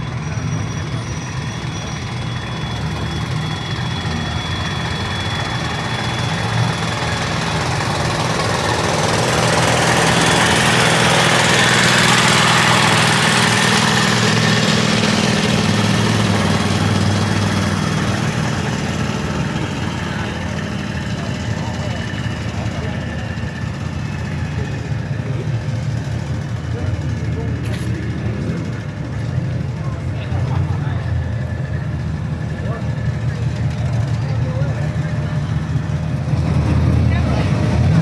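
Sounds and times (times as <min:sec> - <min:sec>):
vehicle engine humming: 0:00.0 - 0:38.0.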